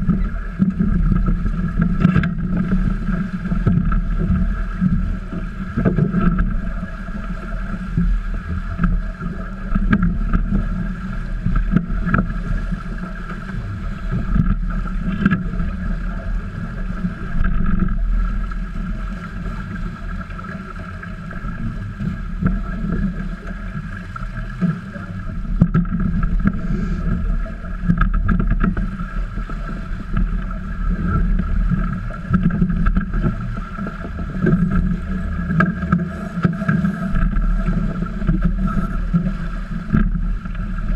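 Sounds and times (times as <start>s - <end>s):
steady high hum: 0.0s - 40.9s
water rushing along hulls: 0.0s - 40.9s.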